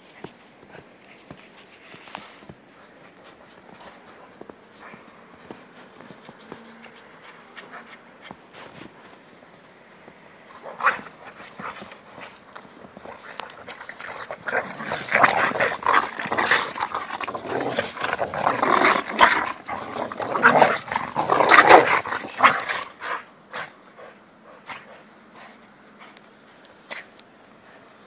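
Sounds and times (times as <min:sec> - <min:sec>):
dogs growling and snarling: 0:10.5 - 0:25.0.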